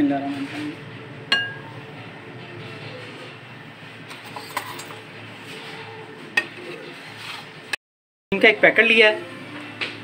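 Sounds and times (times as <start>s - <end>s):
spoon scraping tub: 4.1s - 7.7s.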